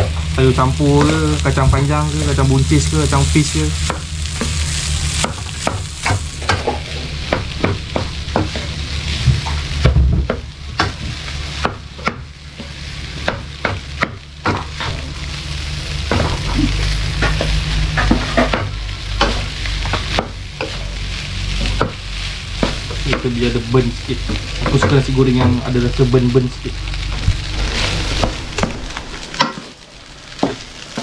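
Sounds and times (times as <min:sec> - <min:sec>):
fried rice sizzling: 0:00.0 - 0:31.0
spatula scraping a wok: 0:03.1 - 0:23.0.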